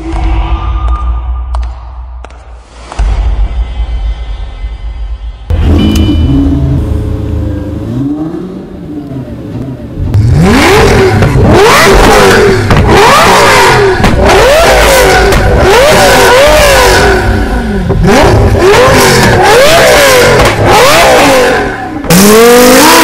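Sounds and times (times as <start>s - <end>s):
sports car engine revving: 5.5s - 23.0s
exhaust pops and crackles: 10.9s - 16.1s, 20.3s - 20.7s.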